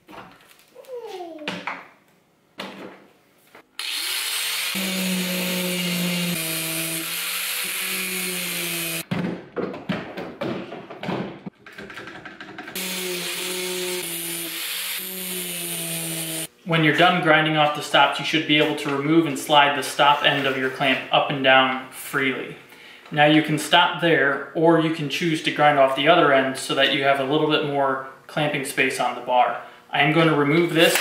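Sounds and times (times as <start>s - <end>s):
angle grinder grinding steel: 3.8s - 9.0s, 12.8s - 16.5s.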